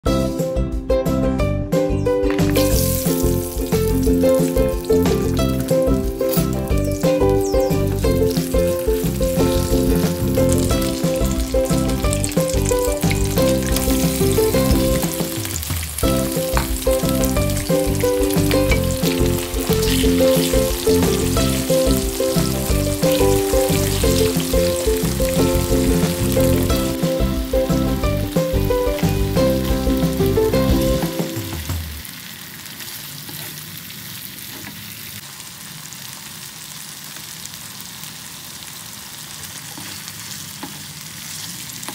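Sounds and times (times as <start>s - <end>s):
background music: 0.0s - 32.0s
food sizzling in hot oil: 2.2s - 41.9s
wooden spatula stirring: 39.7s - 40.9s.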